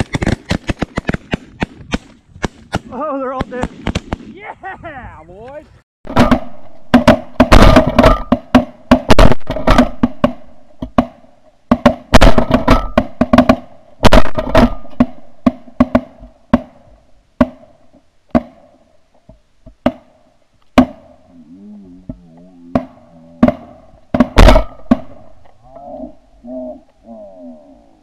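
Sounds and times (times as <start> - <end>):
shotgun shots: 0.0 - 4.4, 6.1 - 16.8, 22.8 - 25.4.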